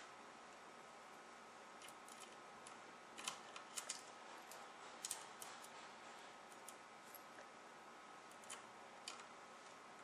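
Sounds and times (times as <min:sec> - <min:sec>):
steady low hiss: 0:00.0 - 0:10.0
small clicks of laptop parts: 0:03.2 - 0:05.8.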